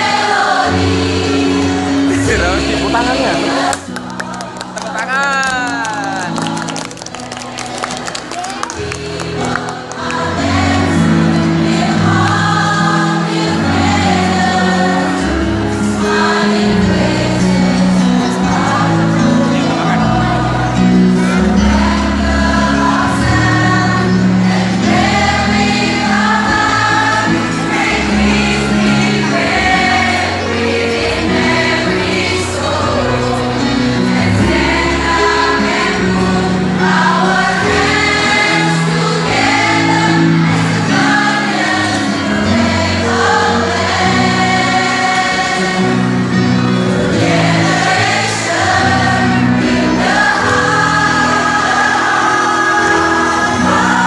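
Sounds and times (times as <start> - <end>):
mixed choir singing: 0.0 - 54.0.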